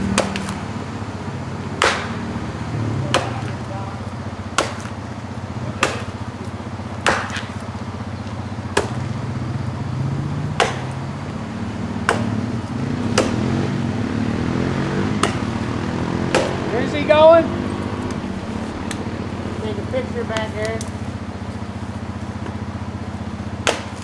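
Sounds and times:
axe chopping tree trunk: 0.0s - 0.6s, 1.8s - 2.3s, 3.1s - 3.6s, 4.5s - 6.4s, 7.0s - 7.7s, 8.7s - 9.1s, 10.4s - 11.0s, 12.0s - 13.6s, 15.1s - 15.6s, 16.3s - 16.6s, 23.5s - 24.0s
atv engine idling: 0.0s - 24.0s.

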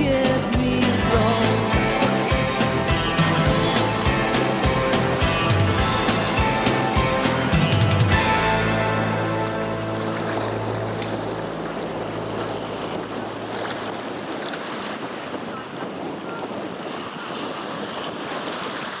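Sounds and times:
background music: 0.0s - 12.8s
small waves breaking on beach: 8.1s - 19.0s
wind buffeting microphone: 10.5s - 19.0s.

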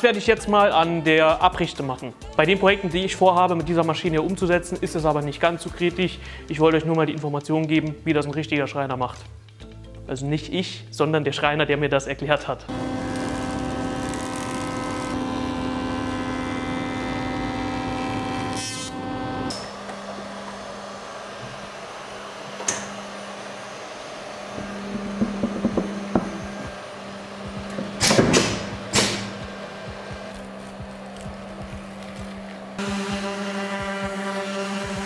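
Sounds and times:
jointer whining: 12.7s - 35.0s
low machine hum: 12.7s - 35.0s
wooden board clunks: 24.6s - 26.8s, 27.7s - 29.3s.

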